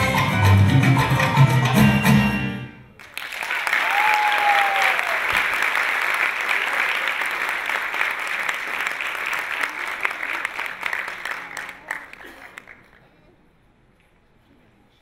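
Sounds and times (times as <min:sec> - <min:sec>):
salsa music: 0:00.0 - 0:02.8
audience applauding: 0:03.0 - 0:13.2.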